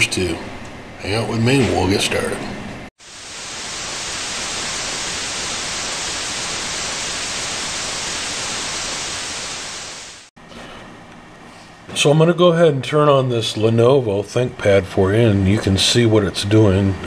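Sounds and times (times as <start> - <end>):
static hiss: 3.0 - 10.3.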